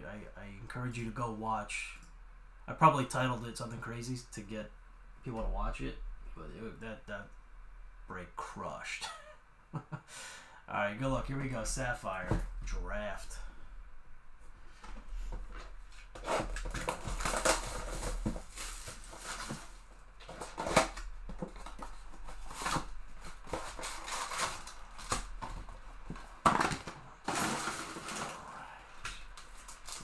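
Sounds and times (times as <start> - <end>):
cardboard and wrappers rustling: 14.6 - 30.0.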